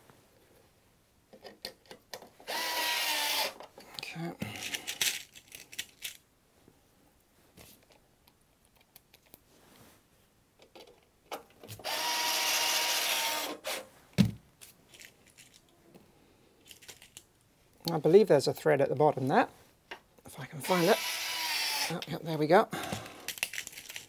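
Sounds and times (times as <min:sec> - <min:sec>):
electric screwdriver whining: 0:02.5 - 0:03.6, 0:11.8 - 0:13.8, 0:20.6 - 0:21.9
thump: 0:14.2 - 0:14.4.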